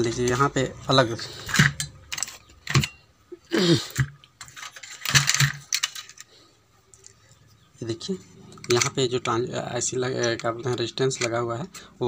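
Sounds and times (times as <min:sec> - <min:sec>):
man's voice: 0:07.8 - 0:12.0.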